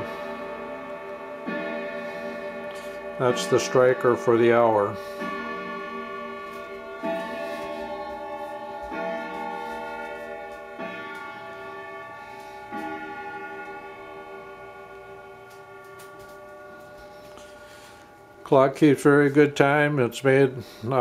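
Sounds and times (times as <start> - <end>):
grandfather clock striking: 0.0 - 21.0.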